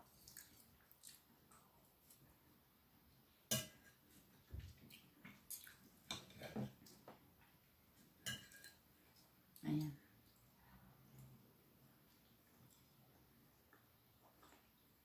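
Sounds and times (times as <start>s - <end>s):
fork and knife clinking on a plate: 8.2s - 8.8s.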